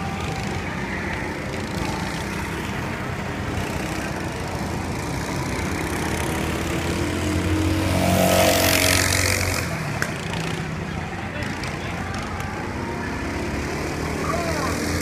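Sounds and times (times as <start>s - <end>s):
kart engine buzzing: 0.0s - 15.0s.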